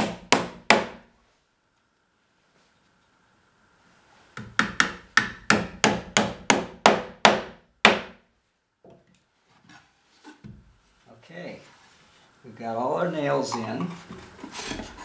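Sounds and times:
hammer driving nail into wood: 0:00.0 - 0:01.0, 0:04.4 - 0:08.2.

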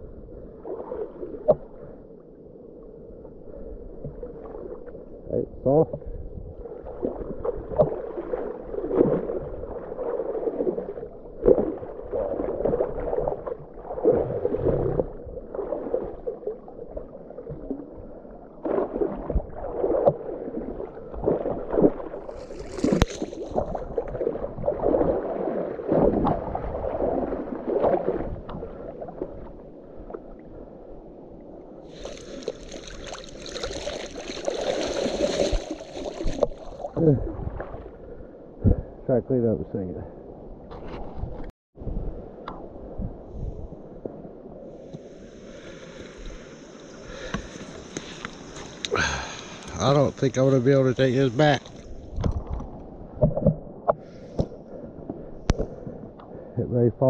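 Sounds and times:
water sloshing and splashing: 0:00.5 - 0:02.0, 0:06.0 - 0:30.7, 0:31.8 - 0:38.9, 0:43.0 - 0:56.0
water pouring off seat: 0:31.9 - 0:36.8.

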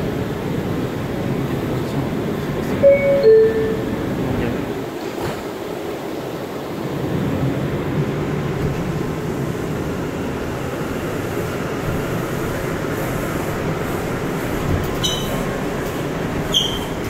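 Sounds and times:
subway wheels rumbling on rails: 0:00.0 - 0:17.0
high wheel squeal: 0:15.0 - 0:15.5, 0:16.4 - 0:17.0.

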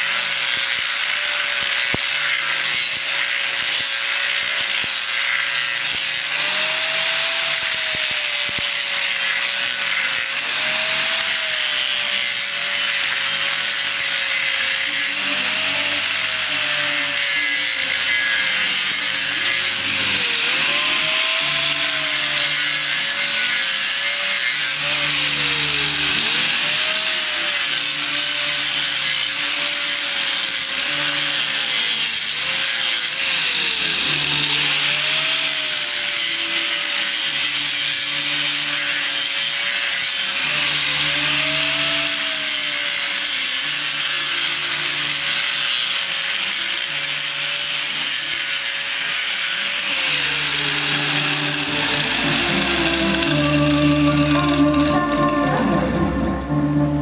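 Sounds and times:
wavering hum: 0:50.5 - 0:57.0.

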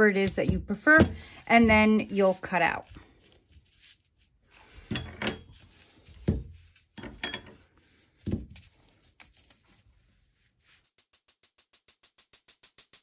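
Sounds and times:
steel washers thunking on table: 0:00.2 - 0:01.4.

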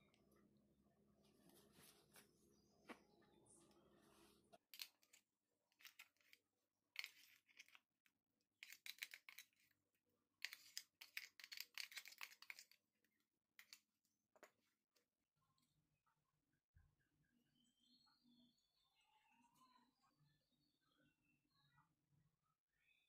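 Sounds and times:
spoon scraping and clicking in bowl: 0:08.6 - 0:09.7, 0:10.4 - 0:12.8.

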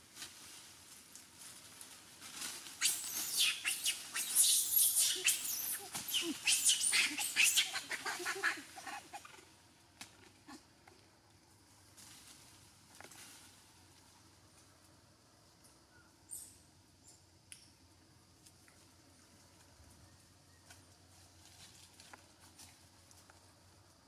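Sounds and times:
animal squealing cries: 0:02.8 - 0:09.3.

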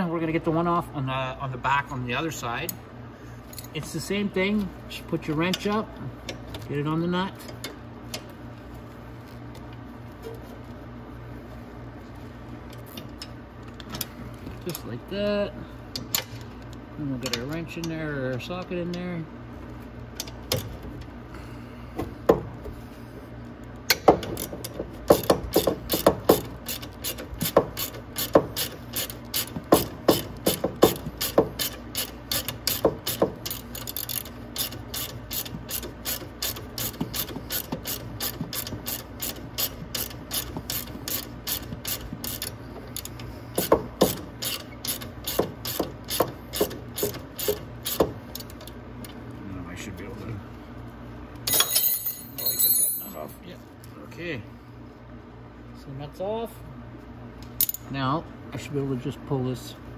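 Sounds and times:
socket ratchet clicking: 0:25.1 - 0:48.7.

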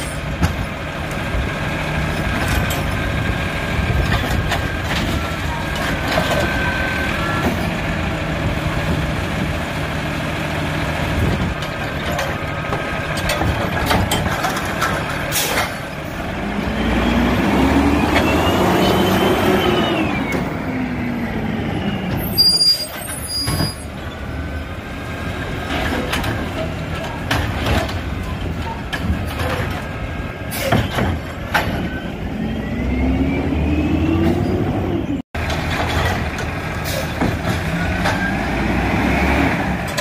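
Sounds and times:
garbage truck engine revving: 0:00.6 - 0:22.2, 0:23.8 - 0:40.0
air brakes hissing: 0:30.5 - 0:30.9.

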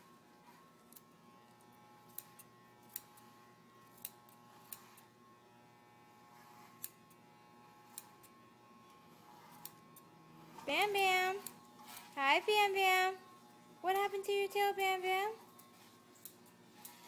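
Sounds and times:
scissors snipping fur: 0:00.7 - 0:05.1, 0:06.3 - 0:07.2, 0:07.8 - 0:12.3, 0:15.6 - 0:17.0.

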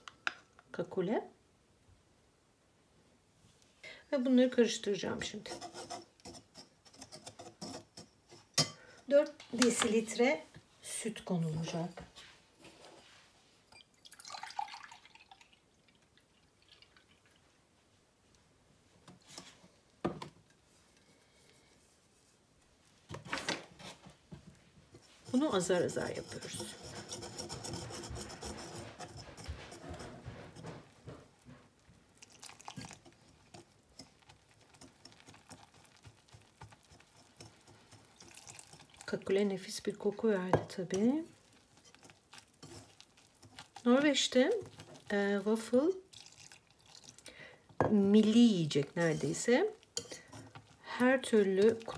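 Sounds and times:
whisk stirring flour in bowl: 0:05.2 - 0:08.7, 0:24.9 - 0:31.3, 0:32.2 - 0:47.2, 0:47.8 - 0:51.9
small drips: 0:13.6 - 0:17.6, 0:32.1 - 0:39.2, 0:46.0 - 0:47.8
milk pouring: 0:13.8 - 0:17.6, 0:32.1 - 0:39.3, 0:46.0 - 0:47.5.

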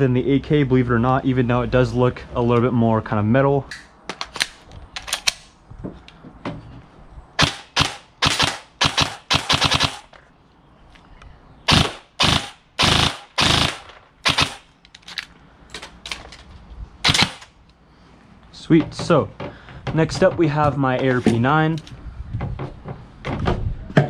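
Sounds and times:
airsoft rifle firing bursts: 0:07.4 - 0:10.1, 0:11.7 - 0:14.7, 0:17.0 - 0:17.5.

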